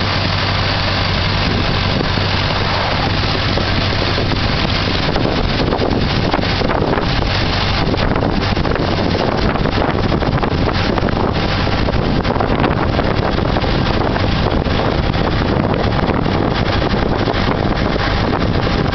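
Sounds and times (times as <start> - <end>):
car engine running: 0.0 - 18.9
wind buffeting microphone: 0.0 - 18.9.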